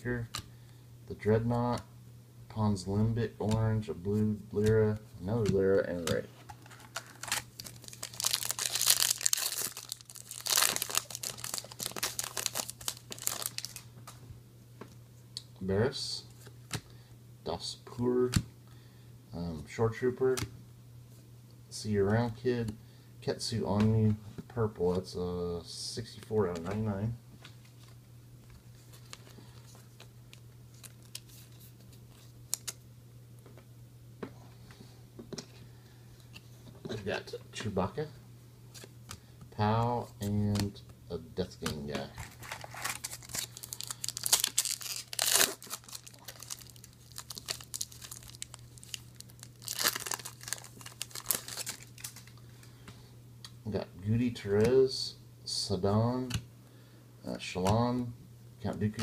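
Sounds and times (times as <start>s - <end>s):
cards clicking: 5.4s - 13.8s
foil wrapper crinkling and tearing: 6.6s - 13.9s, 30.7s - 32.8s, 42.2s - 52.4s
trading cards sliding and rustling: 41.6s - 48.2s.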